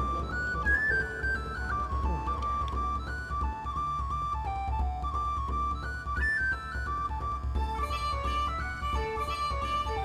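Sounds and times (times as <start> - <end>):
stepping melody: 7.6 - 10.0.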